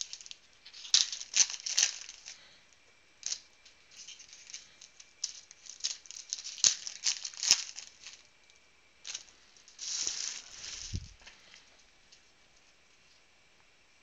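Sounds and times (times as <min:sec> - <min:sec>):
foil wrappers crinkling and tearing: 0:00.0 - 0:02.6, 0:03.2 - 0:08.3, 0:09.1 - 0:11.6.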